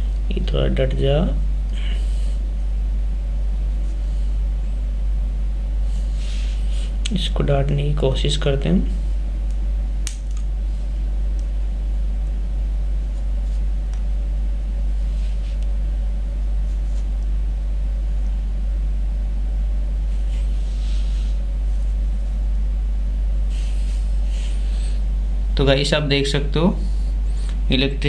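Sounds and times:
low rumble with hum: 0.0s - 28.0s.

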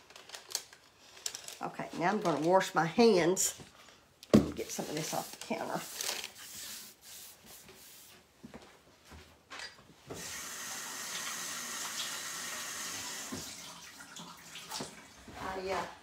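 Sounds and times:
water running into sink: 10.2s - 15.3s.

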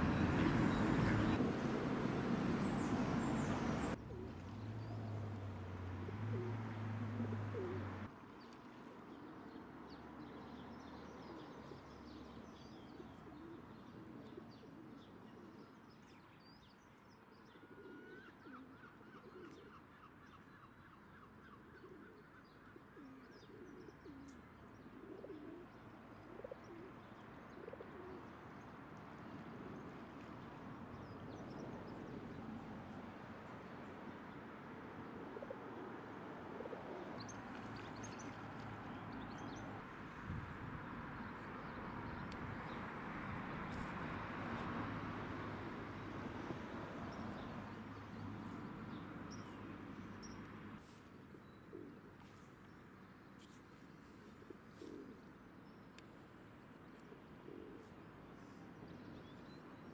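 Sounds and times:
small birds chirping: 0.0s - 5.0s
pigeons cooing: 6.0s - 8.1s, 17.7s - 19.8s, 23.0s - 28.4s, 35.1s - 37.2s, 54.4s - 55.3s, 57.1s - 58.0s.

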